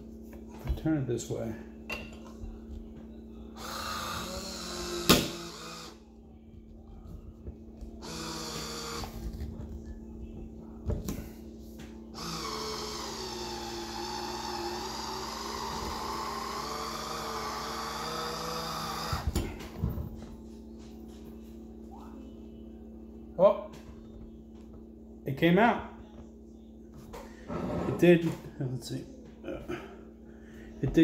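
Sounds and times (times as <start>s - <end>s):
electric wine opener whirring: 3.6s - 6.0s, 8.0s - 9.2s, 12.2s - 19.4s.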